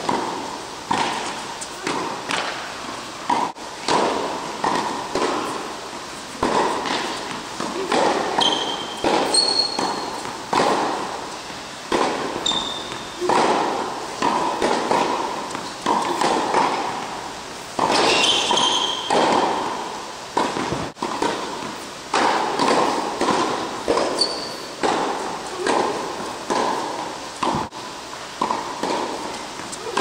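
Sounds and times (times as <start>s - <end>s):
tennis ball hit and bouncing: 0.0s - 30.0s
shoes squeaking on court: 6.3s - 10.5s, 11.3s - 13.3s, 17.9s - 19.6s, 23.9s - 24.8s.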